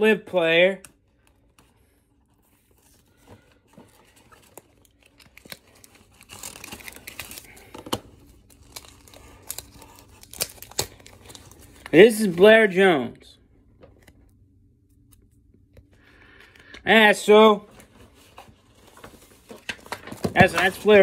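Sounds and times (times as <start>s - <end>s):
plastic wrapper crinkling and tearing: 3.8s - 12.5s, 17.8s - 21.0s.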